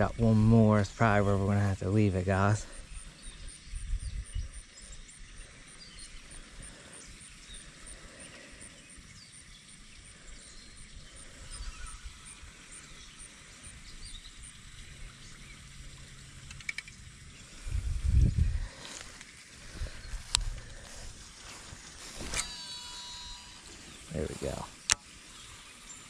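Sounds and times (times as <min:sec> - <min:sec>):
wind rumbling on microphone: 0:00.0 - 0:07.2, 0:13.7 - 0:22.4
faint chirps: 0:00.0 - 0:26.0
low steady hum: 0:00.0 - 0:26.0.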